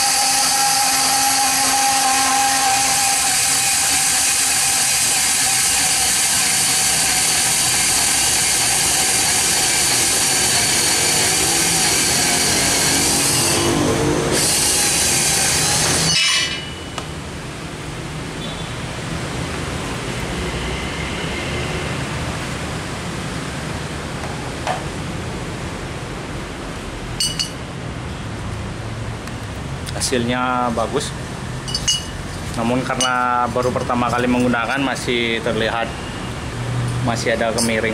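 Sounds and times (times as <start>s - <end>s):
band saw cutting steel: 0.0s - 17.0s, 31.7s - 37.9s
faint metal clink: 31.7s - 32.1s.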